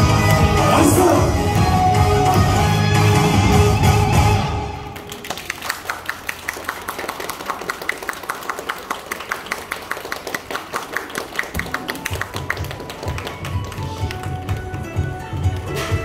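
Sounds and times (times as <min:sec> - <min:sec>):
audience applauding: 0:04.8 - 0:15.8.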